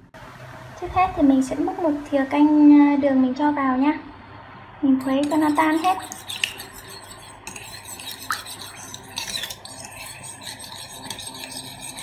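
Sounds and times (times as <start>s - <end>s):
metal spoon stirring in bowl: 5.0s - 12.0s.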